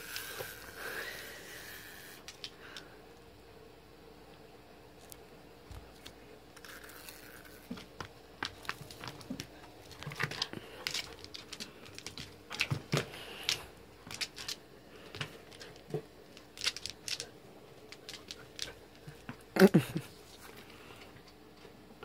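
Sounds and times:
faint steady hum: 0:00.0 - 0:22.0
puppy claws scrabbling on wood: 0:07.4 - 0:17.3, 0:17.9 - 0:19.4.

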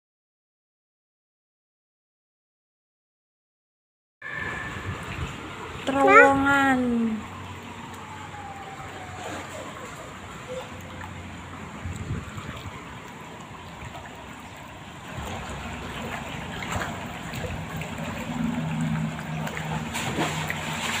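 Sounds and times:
floodwater flowing and lapping: 0:04.2 - 0:21.0.

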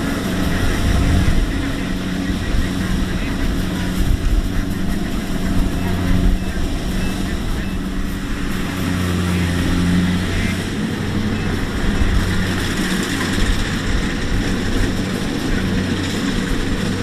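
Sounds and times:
combine harvester running: 0:00.0 - 0:17.0.

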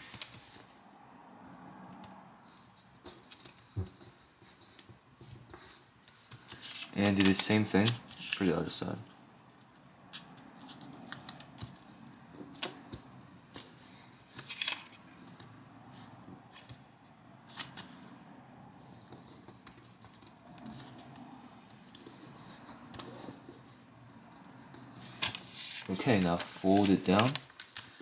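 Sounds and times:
paper crackles and taps: 0:02.5 - 0:08.5, 0:24.7 - 0:28.0
paper rustling: 0:02.6 - 0:08.8, 0:13.6 - 0:15.5, 0:24.6 - 0:28.0.

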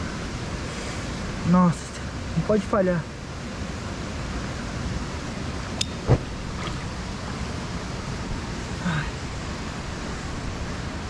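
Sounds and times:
stream running over stones: 0:00.0 - 0:11.0
fire igniting with a thump: 0:06.0 - 0:06.8.

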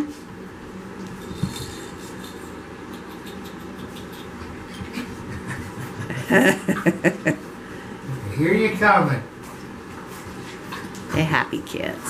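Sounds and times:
puppies scuffling on blanket: 0:09.4 - 0:11.2.

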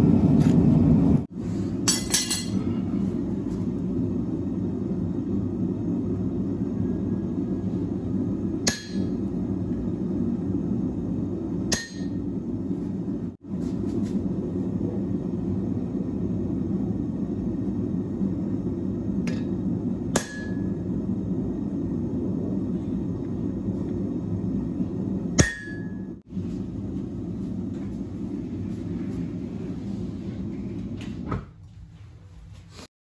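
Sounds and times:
low rushing noise: 0:02.8 - 0:31.2.

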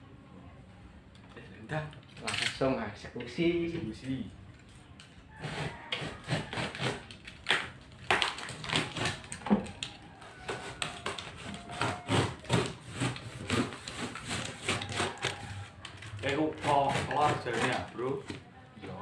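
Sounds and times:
packing tape pulling: 0:06.5 - 0:16.4.

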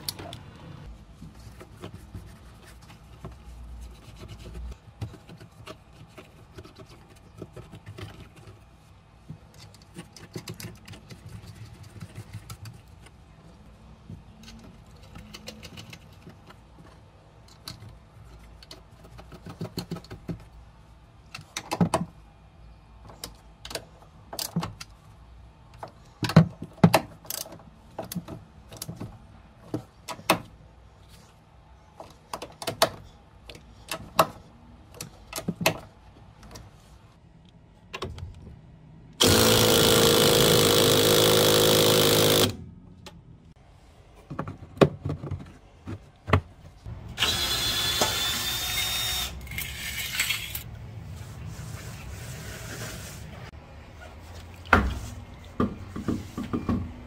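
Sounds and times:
power tool running: 0:39.2 - 0:42.6, 0:47.2 - 0:49.4.

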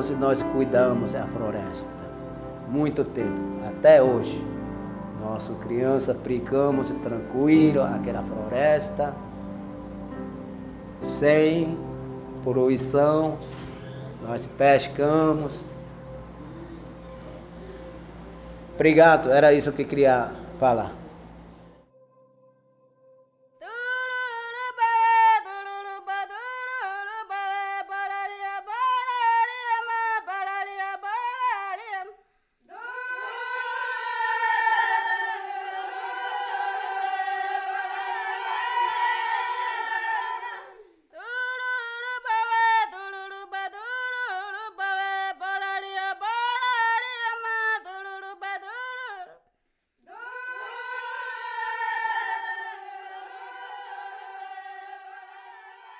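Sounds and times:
unaccompanied group singing: 0:32.7 - 0:43.3, 0:50.1 - 0:55.9.

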